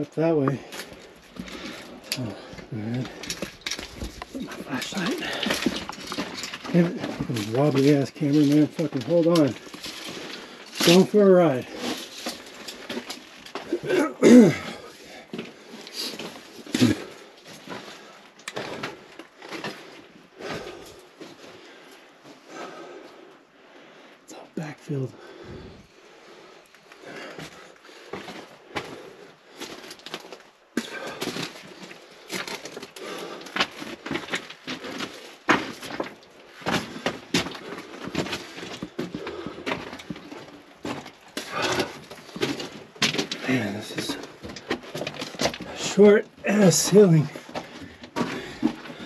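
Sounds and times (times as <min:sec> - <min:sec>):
rock and gear scraping and knocking: 0:00.3 - 0:13.8, 0:27.0 - 0:49.0
person grunting: 0:13.7 - 0:14.8.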